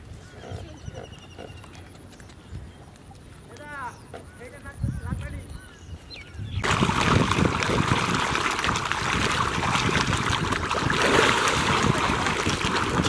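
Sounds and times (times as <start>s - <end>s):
fish splashing at water surface: 6.6s - 13.0s.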